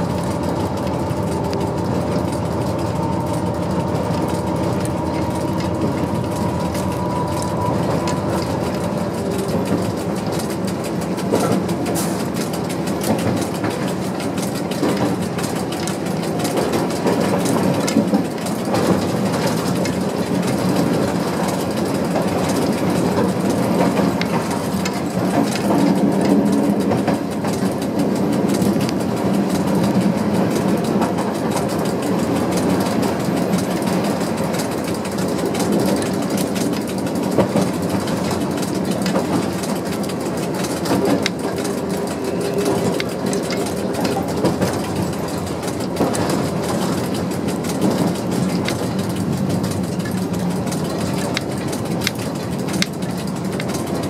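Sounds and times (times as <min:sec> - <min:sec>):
diesel locomotive engine drone: 0:00.0 - 0:54.0
wheels rumbling on rails: 0:00.0 - 0:54.0.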